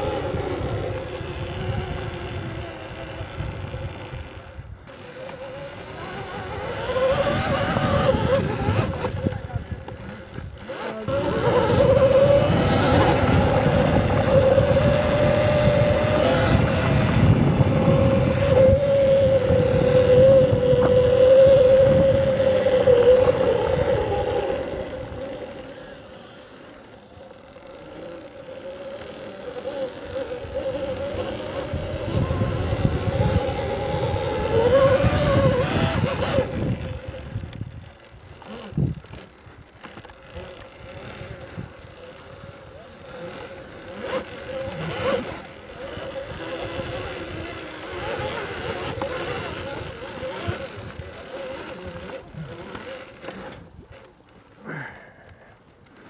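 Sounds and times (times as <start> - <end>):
electric motor whine: 0.0 - 55.0
low rumbling noise: 7.4 - 26.3.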